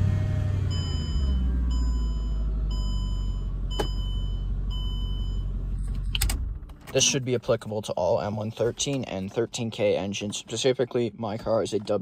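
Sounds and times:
car warning chime beeping: 0.6s - 5.8s.

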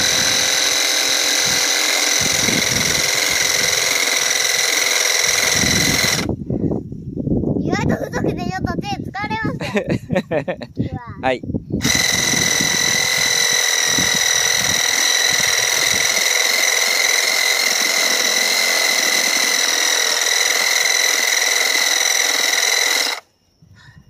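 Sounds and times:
reciprocating saw motor whine: 0.0s - 6.3s, 11.8s - 23.4s
saw blade rasping in wood: 0.0s - 6.3s, 11.8s - 23.2s.

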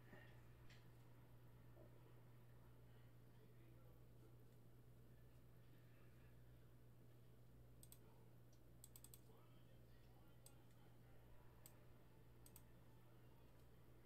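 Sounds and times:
computer mouse and key clicks: 7.8s - 9.3s, 12.4s - 12.7s.

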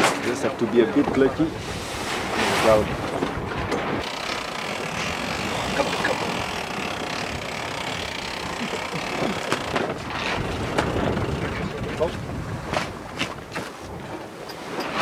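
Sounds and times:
wind on microphone: 0.0s - 15.0s
water rushing past hull: 1.0s - 15.0s.

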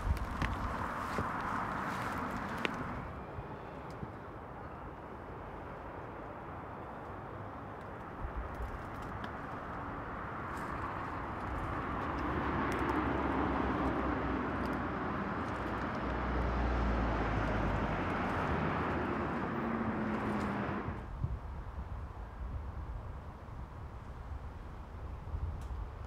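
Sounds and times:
passing vehicle noise: 0.0s - 4.0s, 8.9s - 21.1s.

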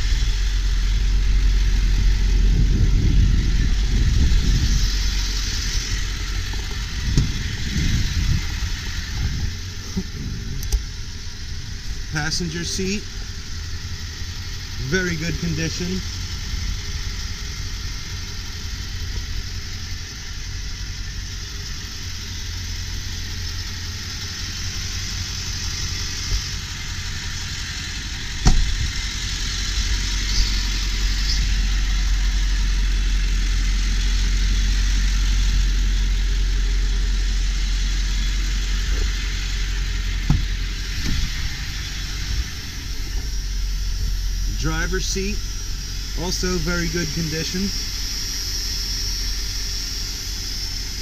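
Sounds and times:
diesel engine idling: 0.0s - 51.0s
sharp engine knock: 40.2s - 41.3s.

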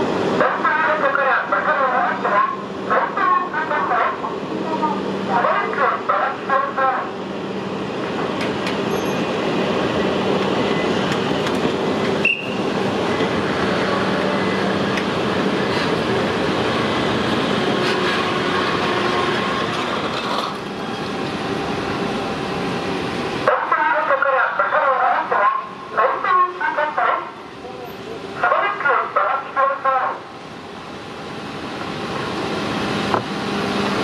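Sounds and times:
train wheels rumbling on rails: 7.1s - 23.5s, 31.3s - 34.0s
high wheel squeal: 8.9s - 9.4s.

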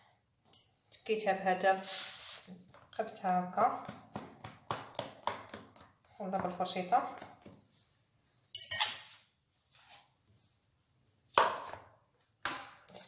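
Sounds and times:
metallic clink: 8.6s - 9.1s.

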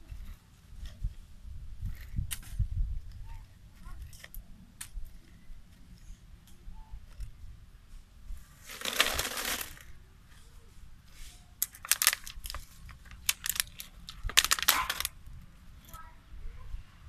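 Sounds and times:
plastic bottle crinkling: 8.6s - 9.9s, 11.6s - 15.2s.

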